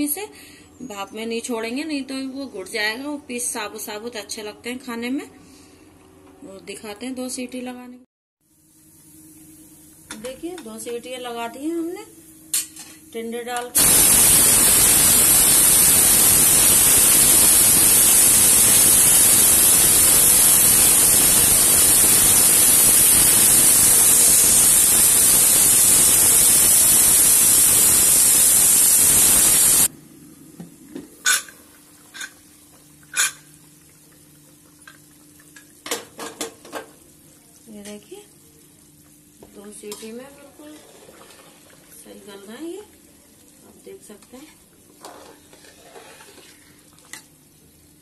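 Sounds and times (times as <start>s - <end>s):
pressure cooker steam hissing: 13.8s - 29.9s.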